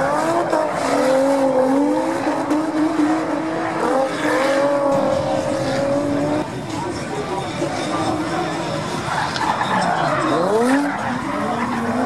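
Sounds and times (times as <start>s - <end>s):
car engines at high revs: 0.0s - 12.0s.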